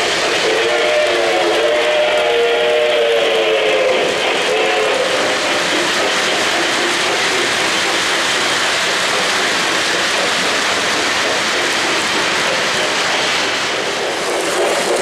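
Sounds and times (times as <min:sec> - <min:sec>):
steam whistle: 0:00.3 - 0:05.3
metal wheels clattering on rails: 0:04.2 - 0:15.0.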